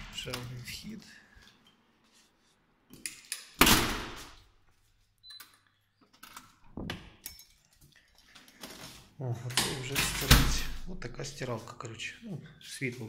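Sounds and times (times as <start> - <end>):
heavy door banging shut: 3.6 - 4.2, 9.9 - 10.8.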